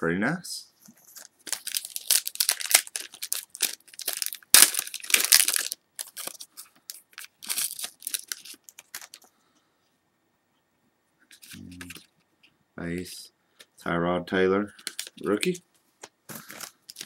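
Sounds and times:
plastic wrapper crinkling and tearing: 1.0 - 9.3, 11.3 - 12.1, 14.7 - 15.6, 16.3 - 17.0.

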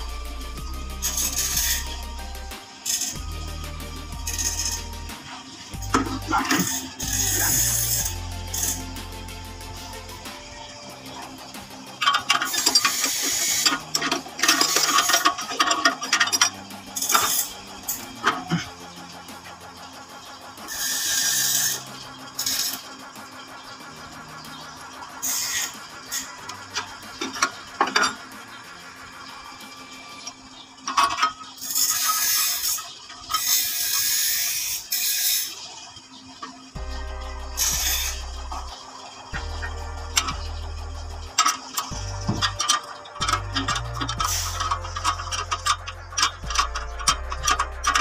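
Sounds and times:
music: 0.0 - 48.0
ratchet wrench clicking: 0.2 - 23.3, 25.2 - 35.6, 37.6 - 38.2, 39.4 - 48.0
metal parts rattling and scraping: 1.0 - 3.4, 4.2 - 48.0
metal clanks: 11.2 - 19.7, 41.3 - 48.0.

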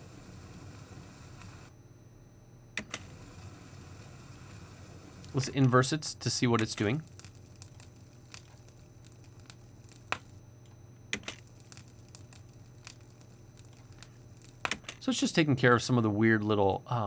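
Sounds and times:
faint low hum: 0.0 - 17.0
faint sparse crackle: 0.1 - 1.7, 6.6 - 14.9.

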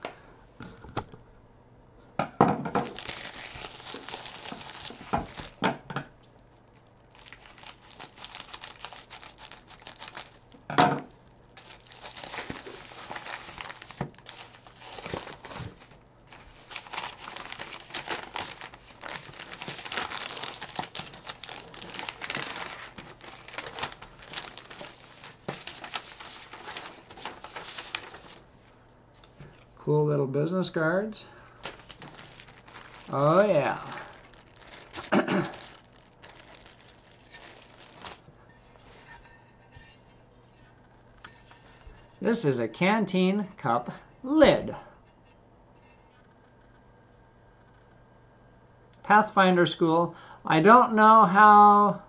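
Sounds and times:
paper packaging crinkling: 2.8 - 28.5, 31.5 - 39.9.

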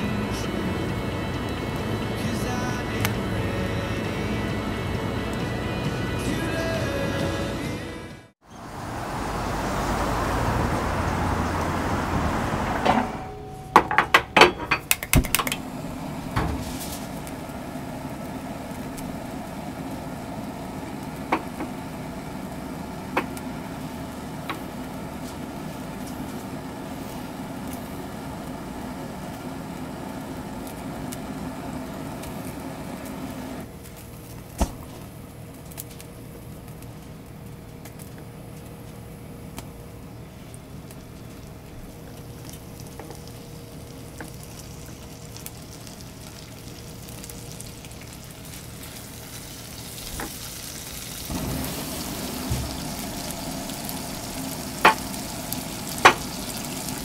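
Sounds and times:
low hum: 0.0 - 50.0, 50.6 - 57.0
steady hiss: 15.6 - 37.4, 39.0 - 57.0.

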